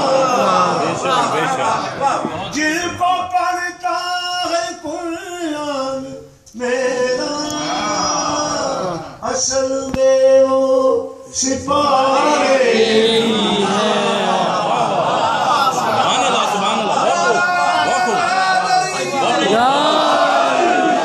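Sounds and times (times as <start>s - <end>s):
man singing a devotional chant: 2.6s - 8.6s, 9.2s - 12.4s.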